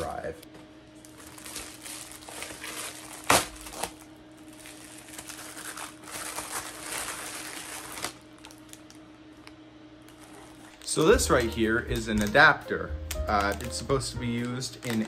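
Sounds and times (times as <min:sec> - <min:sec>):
plastic mailer tearing and crinkling: 0:01.0 - 0:09.0, 0:13.3 - 0:15.0.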